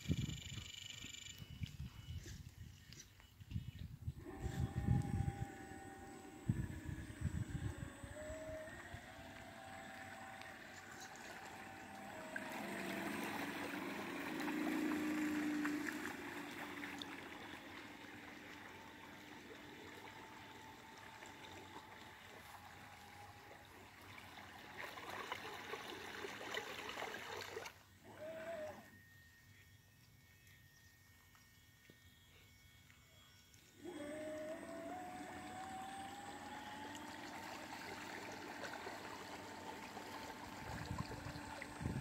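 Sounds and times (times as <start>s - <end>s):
model boat motor whine: 0.0s - 42.0s
water splashing and gurgling: 4.2s - 28.8s, 33.9s - 42.0s.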